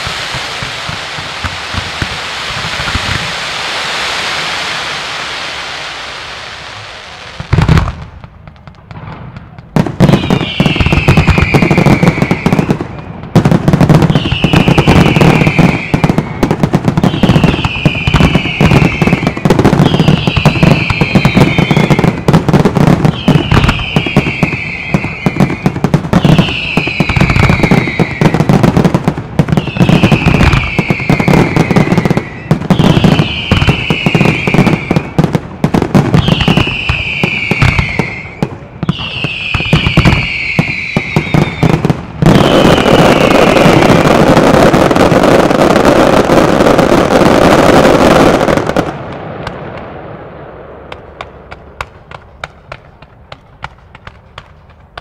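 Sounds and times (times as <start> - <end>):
fireworks bursting and crackling: 0.0 - 55.0
high falling whistle: 10.1 - 12.7, 23.1 - 28.4, 36.2 - 41.7.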